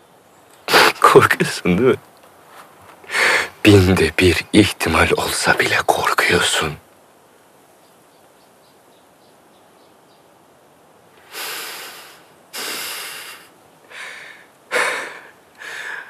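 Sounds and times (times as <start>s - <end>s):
man breathing heavily: 3.0s - 3.6s, 11.2s - 16.0s.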